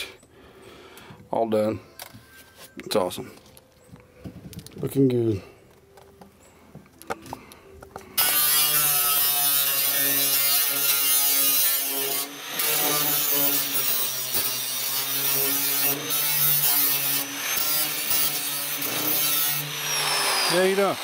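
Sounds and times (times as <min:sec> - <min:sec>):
electric grinder grinding steel: 0:08.2 - 0:21.0.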